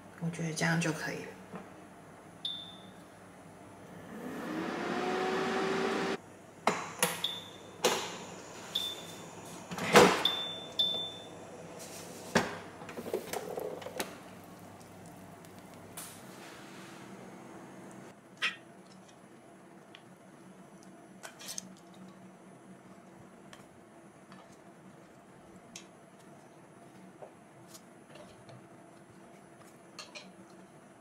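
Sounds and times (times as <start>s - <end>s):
rising hum: 3.8s - 6.2s.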